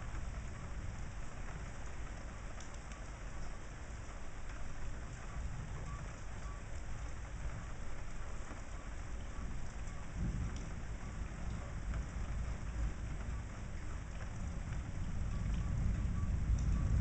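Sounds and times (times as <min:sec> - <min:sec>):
steady rain falling: 0:00.0 - 0:17.0
thunder rumbling: 0:09.3 - 0:17.0.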